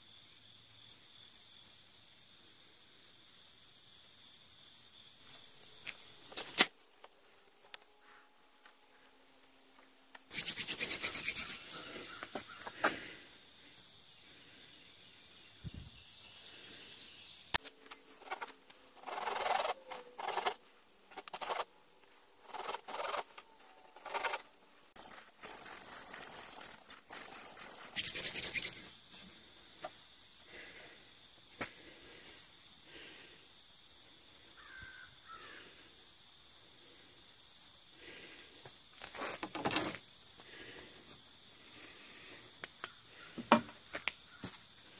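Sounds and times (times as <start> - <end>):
crickets chirring: 0.0 - 44.9
blade scraping wood: 18.0 - 21.7, 22.4 - 28.9.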